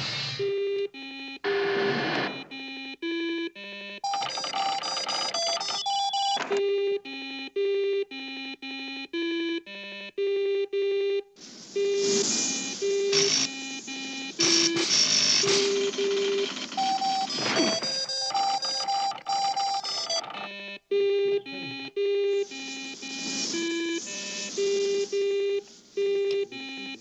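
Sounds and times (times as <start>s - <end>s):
robot electronic beeps: 4.1s - 6.4s, 11.8s - 20.5s, 21.4s - 27.0s
buzzing hissy electronic noise: 11.4s - 16.4s, 21.6s - 27.0s.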